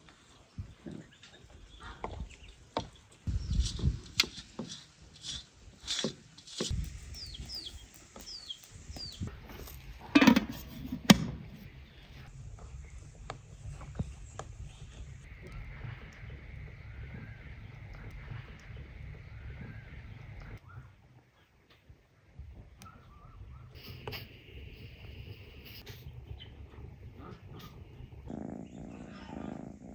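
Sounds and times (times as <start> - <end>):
metal cookware clatter: 10.0 - 11.2.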